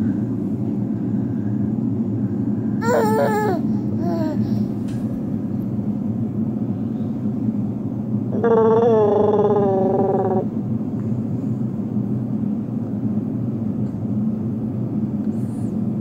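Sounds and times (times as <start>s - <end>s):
steady low hum: 0.0s - 16.0s
baby vocalizing: 2.8s - 4.6s.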